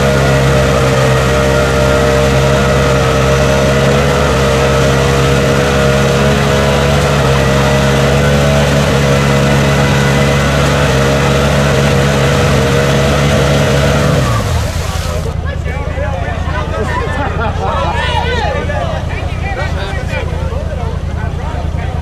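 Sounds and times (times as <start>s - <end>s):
engine at full throttle: 0.0s - 22.0s
wheels spinning in mud: 0.0s - 22.0s.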